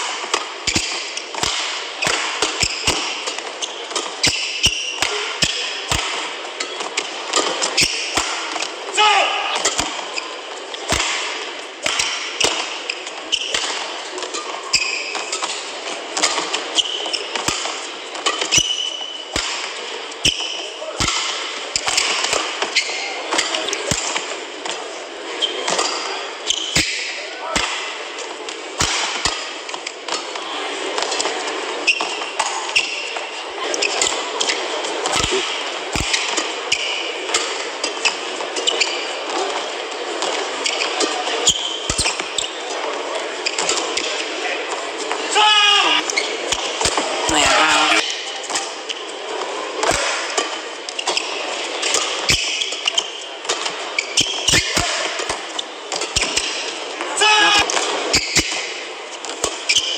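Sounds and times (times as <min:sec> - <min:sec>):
racket striking shuttlecock: 0:00.0 - 0:08.7, 0:09.6 - 0:10.2, 0:10.8 - 0:16.6, 0:21.0 - 0:24.2
racket hitting shuttlecock: 0:00.0 - 0:08.8, 0:09.4 - 0:24.8, 0:26.7 - 0:28.0, 0:28.8 - 0:30.4, 0:33.7 - 0:39.0, 0:49.8 - 0:56.7
shoes squeaking on court: 0:00.0 - 0:08.8, 0:09.6 - 0:20.8, 0:21.4 - 0:27.1, 0:31.0 - 0:45.2, 0:45.8 - 0:57.0, 0:57.6 - 0:59.9
murmur of crowd: 0:00.0 - 0:59.9.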